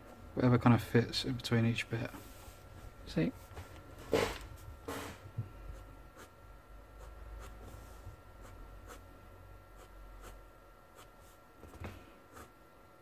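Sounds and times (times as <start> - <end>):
pen scratching on paper: 8.4 - 9.0, 11.0 - 11.4.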